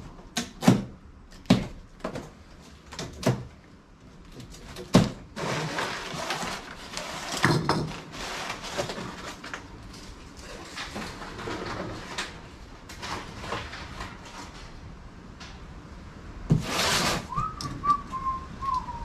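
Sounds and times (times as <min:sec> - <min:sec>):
cardboard box knocks and snaps: 0:00.4 - 0:02.2
plastic straps rustling scrape: 0:04.4 - 0:14.8, 0:16.5 - 0:18.0.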